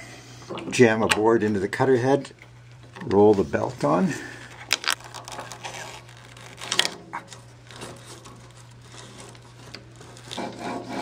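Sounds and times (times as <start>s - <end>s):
rubber belt rubbing and scraping: 4.4s - 11.0s.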